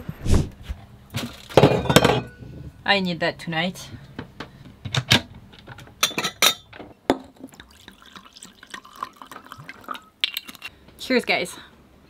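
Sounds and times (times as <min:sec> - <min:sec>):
glass bottle clinking: 0:01.5 - 0:02.4, 0:06.0 - 0:10.7
wine pouring into a glass: 0:07.5 - 0:10.6.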